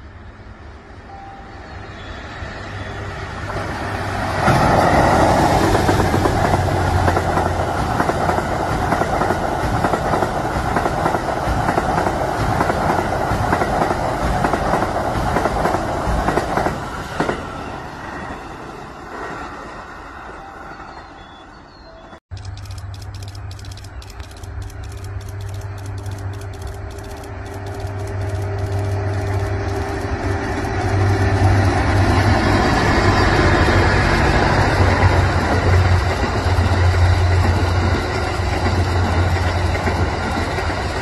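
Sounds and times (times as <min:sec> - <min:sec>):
train wheels rumbling: 0:02.4 - 0:19.8, 0:22.4 - 0:41.0
clickety-clack over rail joints: 0:04.4 - 0:17.4, 0:34.8 - 0:41.0.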